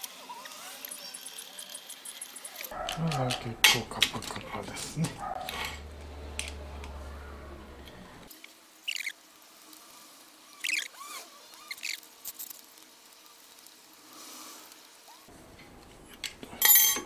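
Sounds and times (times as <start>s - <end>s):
metal parts clattering: 16.2s - 17.0s
metal parts clinking and scraping: 16.2s - 17.0s.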